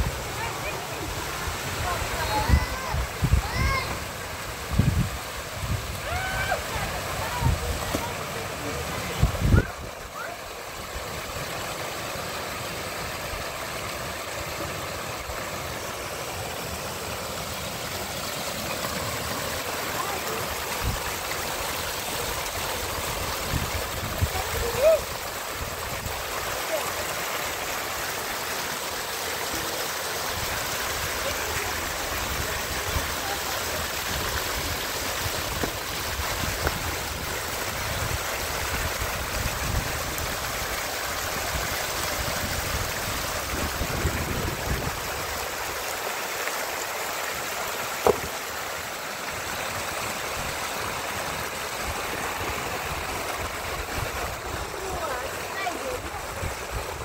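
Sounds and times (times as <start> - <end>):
heavy rain falling: 5.5 - 11.3, 17.8 - 47.0, 51.8 - 57.0
sharp knock: 48.0 - 48.3.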